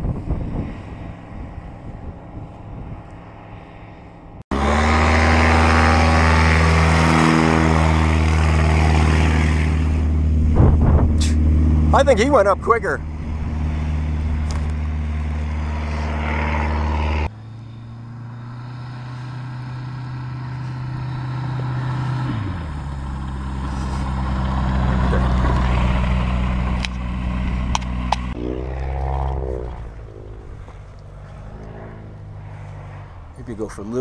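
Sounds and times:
light aircraft engine and propeller: 0.0s - 34.0s.

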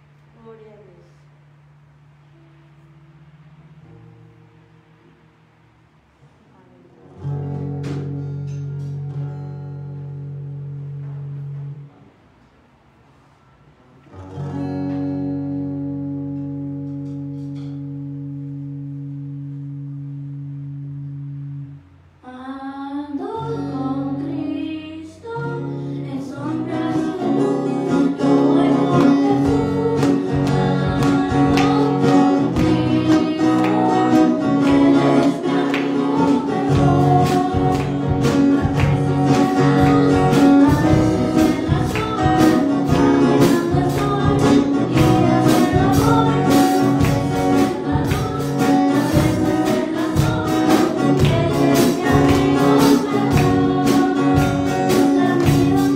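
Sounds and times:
guitar: 0.0s - 55.9s
worship song singing: 22.4s - 55.9s.

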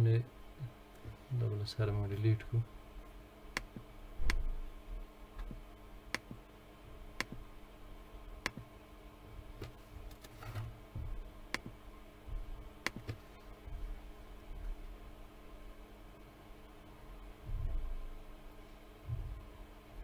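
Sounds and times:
low electrical hum: 0.0s - 20.0s
mouse clicks: 7.2s - 7.4s, 8.4s - 8.7s, 11.5s - 11.8s, 12.8s - 13.2s.

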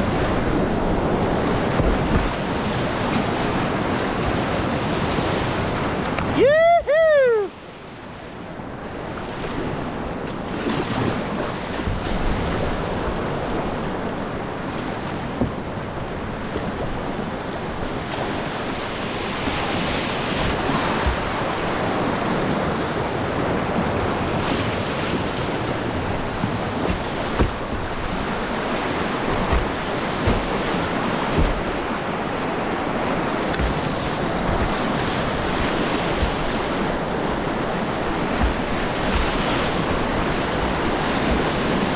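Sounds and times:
whitewater rushing: 0.0s - 7.7s, 12.1s - 41.9s
low thumps: 29.3s - 31.9s.

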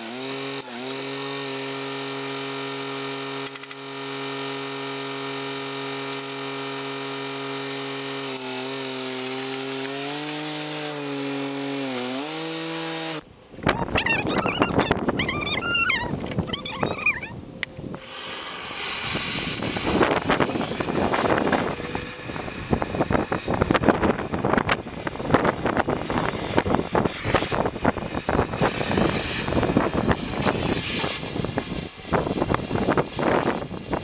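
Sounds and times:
cutting torch hissing: 17.9s - 34.0s.

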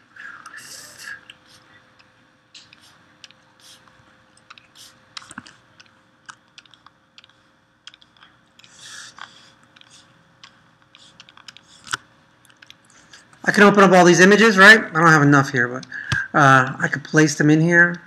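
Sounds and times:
faint steady hum: 0.0s - 18.0s
computer mouse clicks: 4.4s - 13.0s.

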